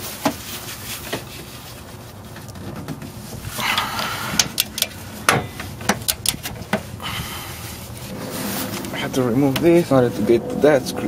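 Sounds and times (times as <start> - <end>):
metal clicks and knocks: 4.3 - 6.9.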